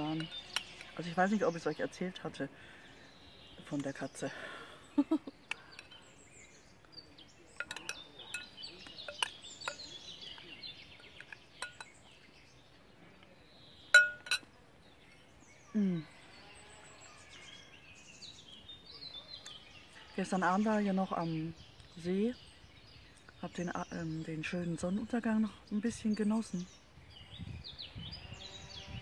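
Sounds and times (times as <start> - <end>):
birds chirping: 0.0 - 29.0
metal spoon clinking on bowl: 7.6 - 10.0, 11.0 - 12.0, 14.0 - 14.5.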